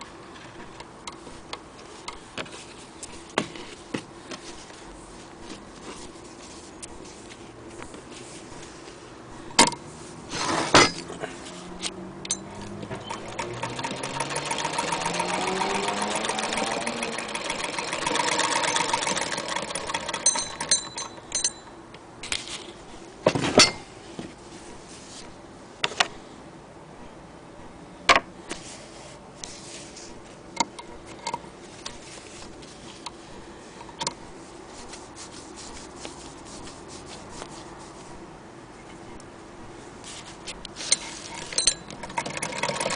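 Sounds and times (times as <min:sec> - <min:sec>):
sewing machine clattering: 0:12.6 - 0:21.7, 0:40.9 - 0:42.9.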